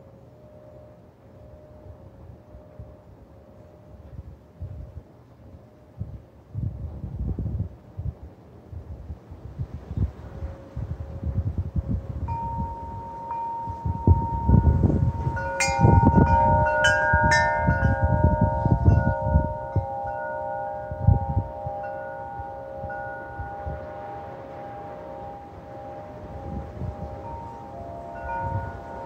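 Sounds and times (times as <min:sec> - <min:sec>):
wind gusts rushing: 0:06.0 - 0:29.0
wind chimes ringing: 0:12.2 - 0:29.0.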